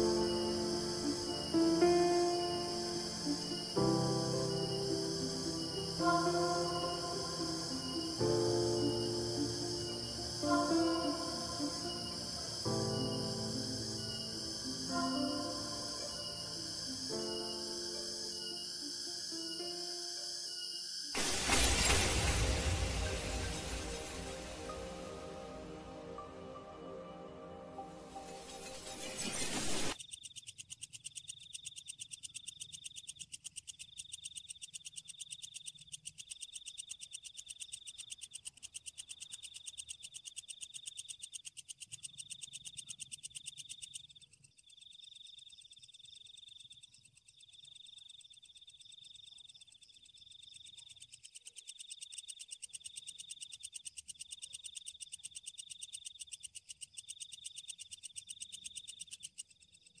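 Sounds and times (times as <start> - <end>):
fast steady pulsing: 0.0 - 19.1
frogs calling: 0.0 - 27.2, 30.0 - 60.0
insects calling: 0.0 - 60.0.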